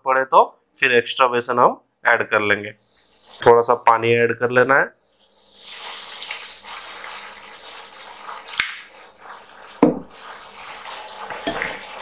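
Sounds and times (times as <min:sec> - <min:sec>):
spoon stirring thick batter: 0:05.1 - 0:12.0
water pouring into a bowl: 0:05.1 - 0:12.0.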